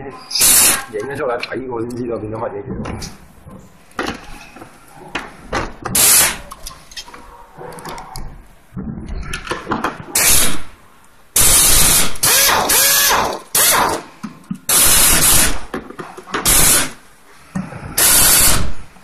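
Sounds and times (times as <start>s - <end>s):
pneumatic screwdriver air hiss: 0.3s - 0.8s, 5.9s - 6.4s, 11.4s - 14.0s, 14.7s - 15.6s, 16.4s - 17.0s, 18.0s - 18.8s.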